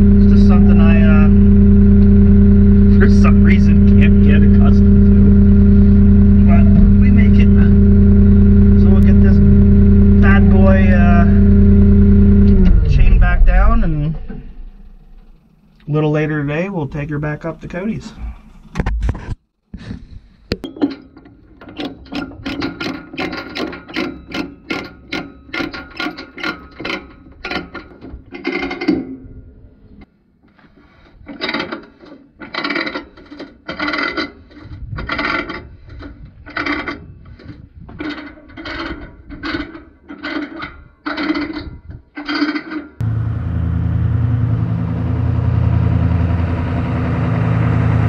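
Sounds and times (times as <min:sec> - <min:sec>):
chain binder ratcheting: 0:20.9 - 0:29.0, 0:31.2 - 0:42.9.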